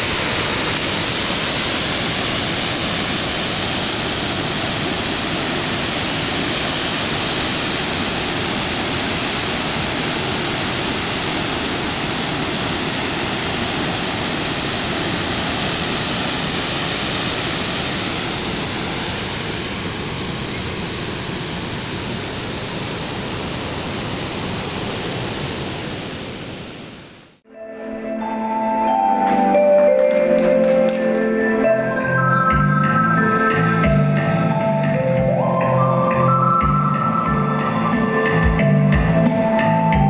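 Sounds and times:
running water rushing: 0.0s - 27.1s.

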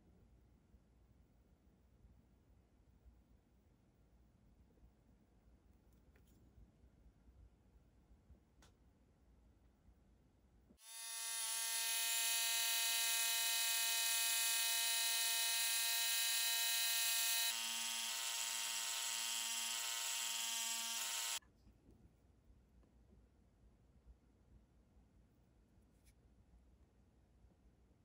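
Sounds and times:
mini drill whining: 10.8s - 21.4s.

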